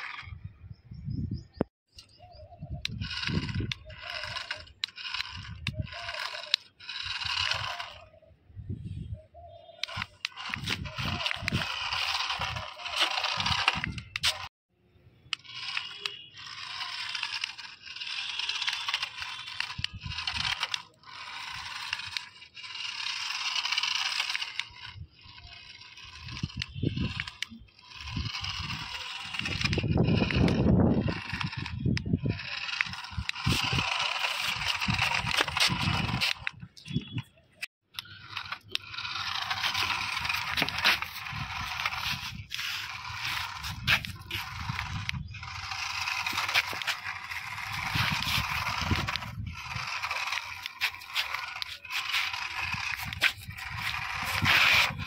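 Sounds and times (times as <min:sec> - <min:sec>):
toy car motor whirring: 0:00.0 - 0:00.5, 0:01.9 - 0:14.6, 0:15.2 - 0:55.0.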